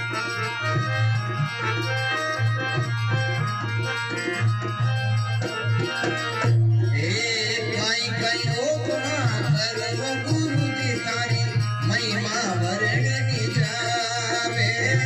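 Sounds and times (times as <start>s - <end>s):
dholak drum beating: 0.0s - 15.0s
harmonium playing: 0.0s - 15.0s
man singing: 6.4s - 15.0s.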